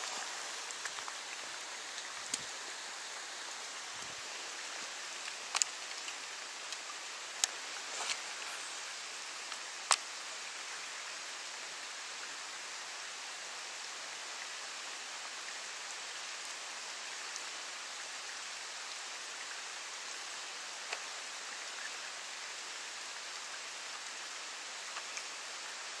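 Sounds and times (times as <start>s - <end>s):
faint ticks: 0.0s - 2.6s, 4.0s - 10.2s, 20.8s - 22.0s, 24.7s - 26.0s
light rain on water: 0.0s - 26.0s.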